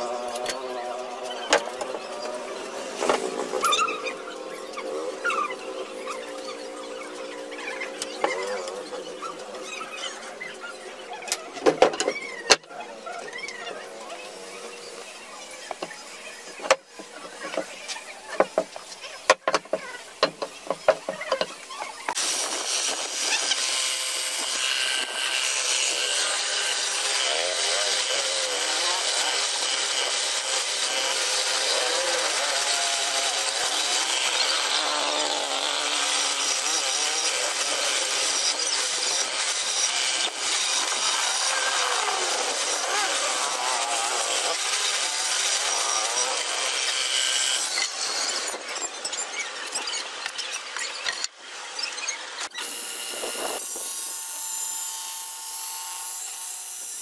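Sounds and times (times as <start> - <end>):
short squeaks: 3.5 - 4.1
boring machine cutting wood: 13.3 - 48.7, 52.5 - 57.0.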